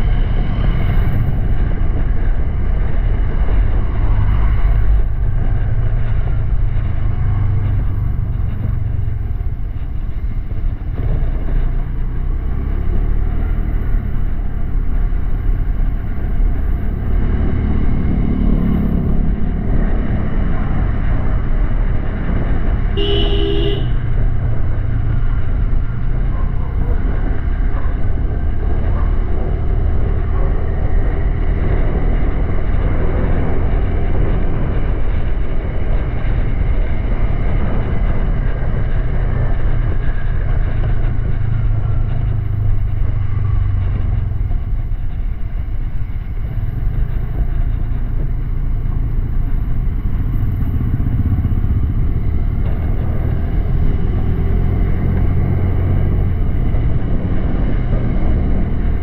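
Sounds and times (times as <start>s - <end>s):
horn beep: 23.0s - 24.0s.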